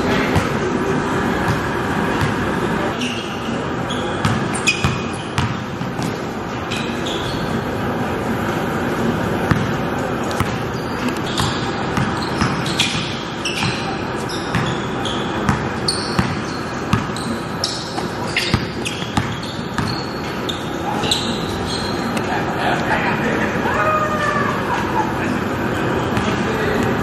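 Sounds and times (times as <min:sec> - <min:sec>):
basketball bouncing on court: 0:01.4 - 0:02.4, 0:03.9 - 0:06.2, 0:09.4 - 0:20.5
sneakers squeaking on floor: 0:01.4 - 0:22.5.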